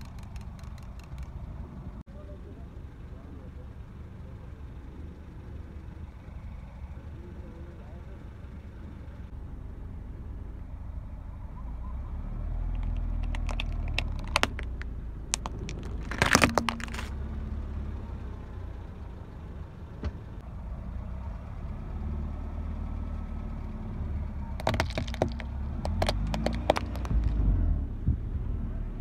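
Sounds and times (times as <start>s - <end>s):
plastic toys cracking under tyre: 0.0s - 1.4s, 12.6s - 17.2s, 24.5s - 27.5s
car engine and tyre rumble: 0.0s - 29.0s.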